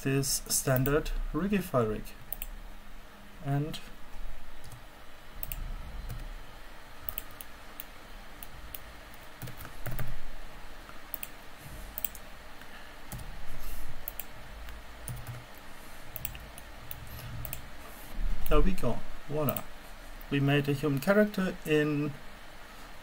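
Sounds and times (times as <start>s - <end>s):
mouse clicking: 2.3s - 2.5s, 7.1s - 10.1s, 11.1s - 11.4s, 12.0s - 12.3s, 14.0s - 14.4s, 15.0s - 17.6s, 19.5s - 20.3s
keyboard keys clicking: 15.1s - 15.4s.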